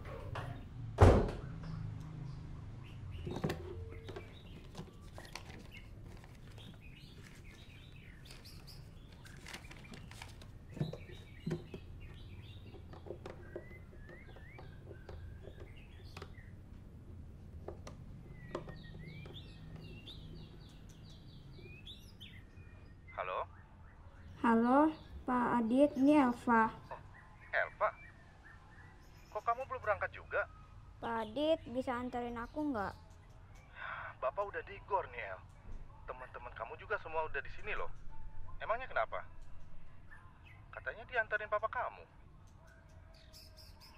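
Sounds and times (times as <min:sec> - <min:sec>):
birds chirping: 0:00.0 - 0:43.9
loud thud: 0:01.0 - 0:01.5.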